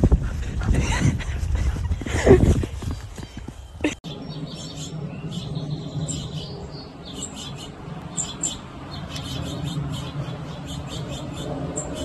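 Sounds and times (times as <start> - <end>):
steady low hum: 0.0 - 12.0
sparrow chirping: 4.1 - 12.0.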